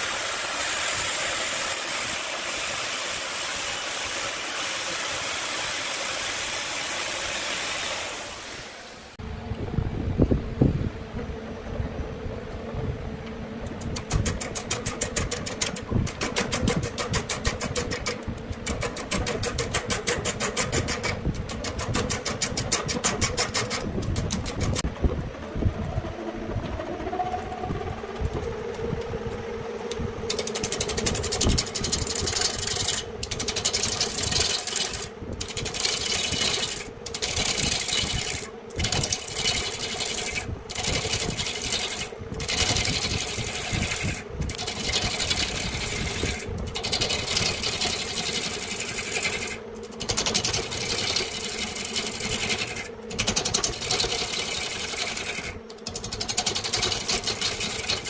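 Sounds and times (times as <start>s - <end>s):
lathe humming: 11.0s - 58.0s.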